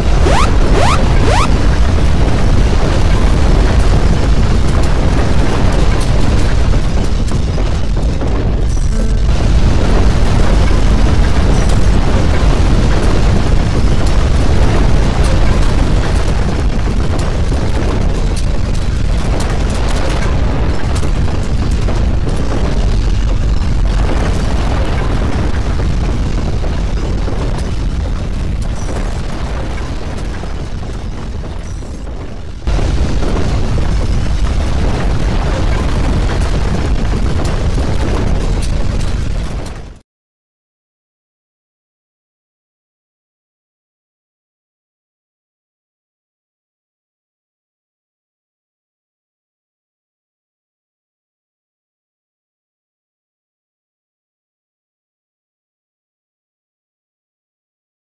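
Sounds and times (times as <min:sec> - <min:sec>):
deep rumbling with crackling: 0:00.0 - 0:40.0.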